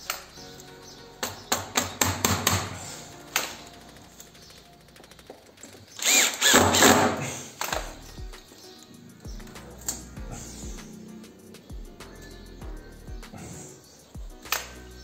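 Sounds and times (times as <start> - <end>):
wire mesh clicking and rattling: 0.0 - 12.4
cordless drill driving screw: 5.9 - 7.9.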